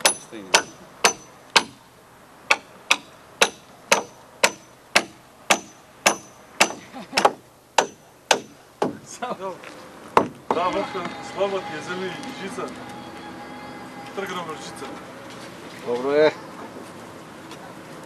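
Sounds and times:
hammer striking nails: 0.0 - 1.8, 2.5 - 9.0.

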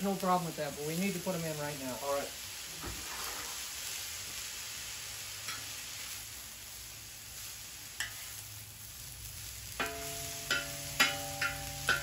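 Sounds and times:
vegetables sizzling in hot oil: 0.0 - 12.0
metal spatula clinking on wok: 9.8 - 12.0.

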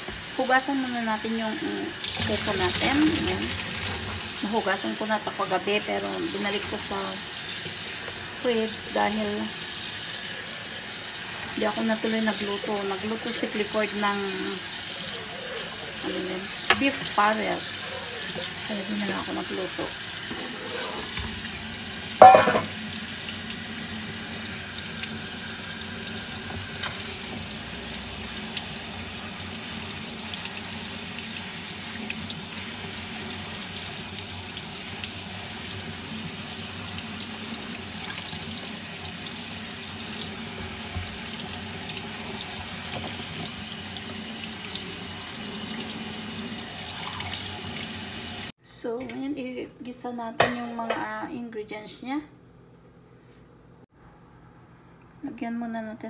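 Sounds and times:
tap water running into sink: 2.0 - 4.6, 6.0 - 10.2, 18.1 - 48.5
loud metal clank: 22.2 - 22.8.

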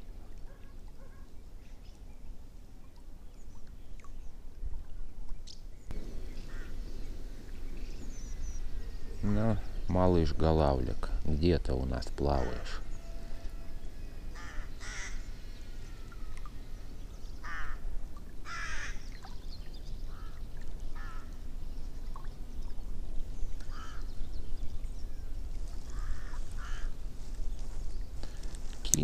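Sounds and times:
birds calling: 5.4 - 29.0
steady low rumble: 5.9 - 12.1.

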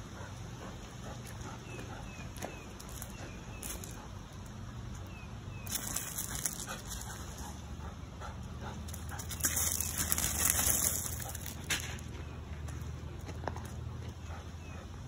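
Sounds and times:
crunching on gravel: 1.8 - 7.5, 8.8 - 14.1.

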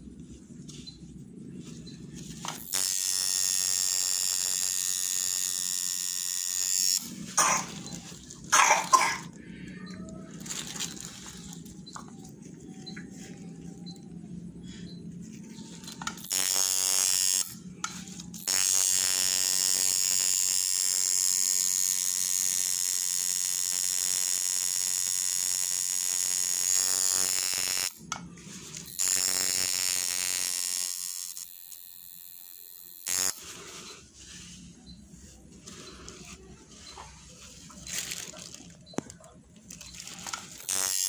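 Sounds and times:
tattoo machine buzzing: 2.2 - 9.3, 15.8 - 28.0, 28.7 - 33.6, 39.8 - 41.0.

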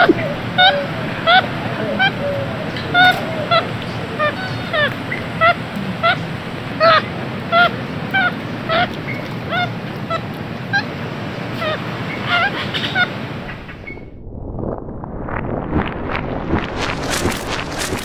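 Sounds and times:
monkeys calling: 0.0 - 13.9.

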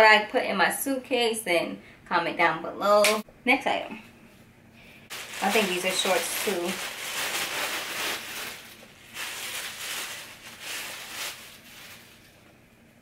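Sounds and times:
plastic bag crinkling: 5.1 - 12.5.

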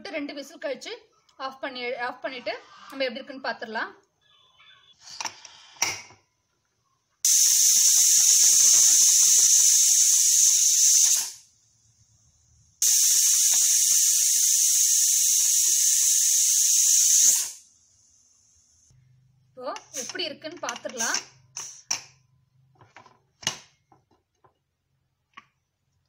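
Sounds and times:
faint hiss of steam: 7.2 - 11.5, 12.8 - 18.6, 21.0 - 21.9
pressure cooker whistling: 7.2 - 11.5, 12.8 - 17.8.

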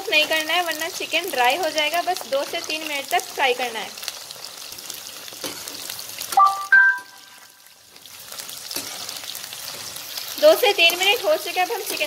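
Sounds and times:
chicken sizzling in hot oil: 0.0 - 12.0
short tones: 6.4 - 7.4
slotted spoon moving through oil: 8.1 - 10.4.

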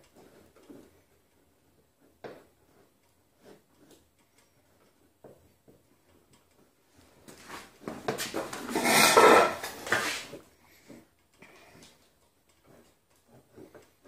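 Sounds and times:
rubbing and scraping handling noise: 0.0 - 11.1.

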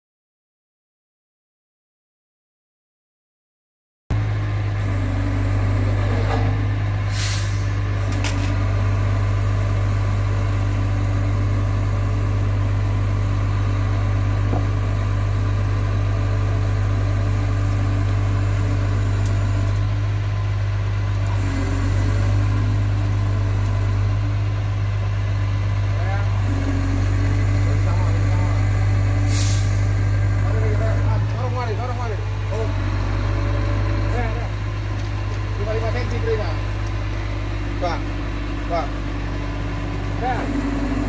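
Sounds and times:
diesel truck engine idling: 4.1 - 41.0
short hiss: 7.1 - 7.7, 29.3 - 29.8
click: 19.2 - 19.8.

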